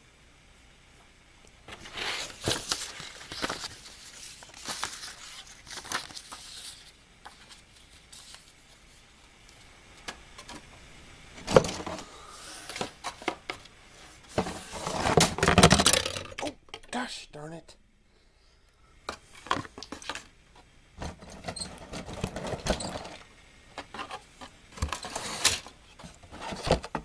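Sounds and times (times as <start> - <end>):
plastic and cardboard rustling: 1.6 - 9.2, 11.4 - 16.5, 19.3 - 27.0.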